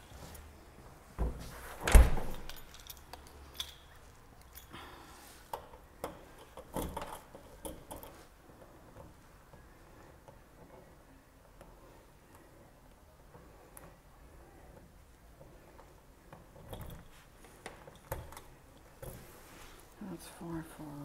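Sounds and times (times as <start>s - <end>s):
door shutting with thud: 1.2s - 2.5s
keys jangling in lock: 2.1s - 4.8s.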